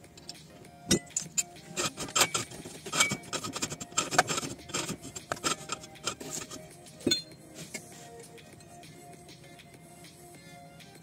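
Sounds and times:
metal parts clicking and knocking: 0.2 - 7.8.

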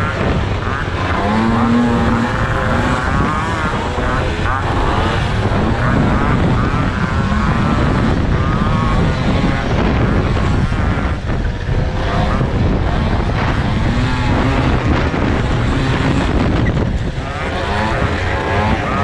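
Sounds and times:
moped engine revving: 0.0 - 19.0.

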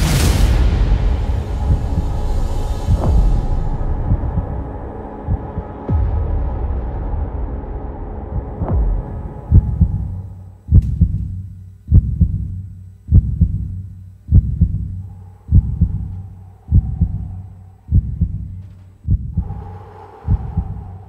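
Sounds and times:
heartbeat thumps: 0.0 - 21.0.

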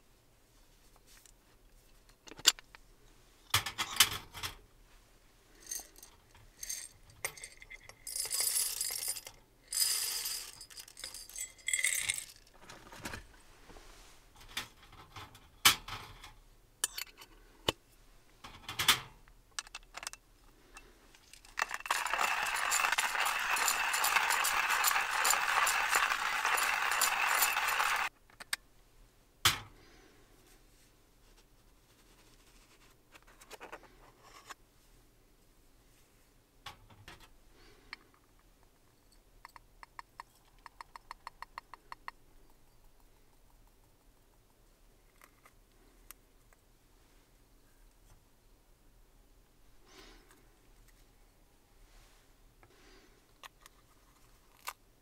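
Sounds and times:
coffee grinder grinding: 21.3 - 28.1.

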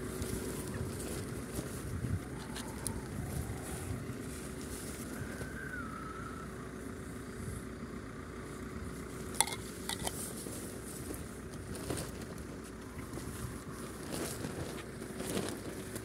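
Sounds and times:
wind noise on microphone: 0.0 - 6.2.

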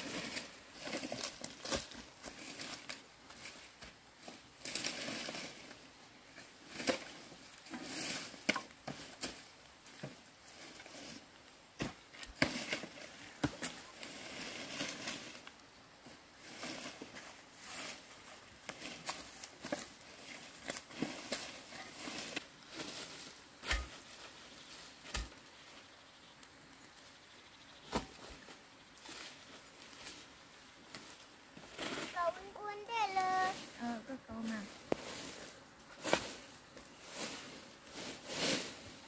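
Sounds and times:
footsteps crunching dry leaves: 16.4 - 25.5, 34.4 - 39.0.

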